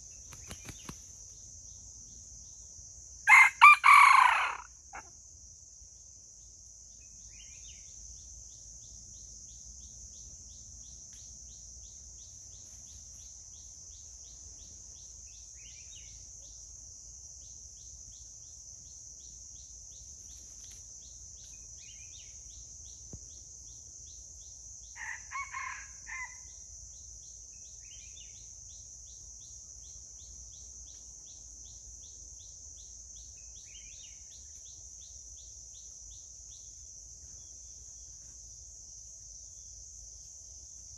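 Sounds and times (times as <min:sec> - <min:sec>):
insects droning and ticking: 0:00.0 - 0:40.9
rooster crowing: 0:03.3 - 0:05.1, 0:25.0 - 0:26.5.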